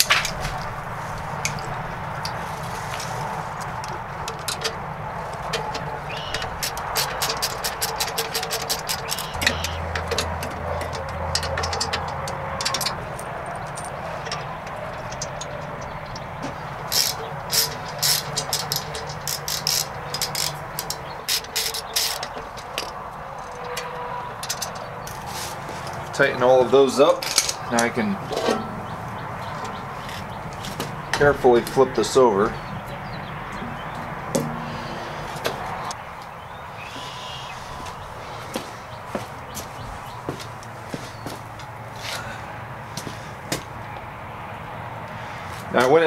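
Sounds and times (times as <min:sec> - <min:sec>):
ratchet wrench clicking: 0:06.2 - 0:13.1, 0:16.8 - 0:23.8.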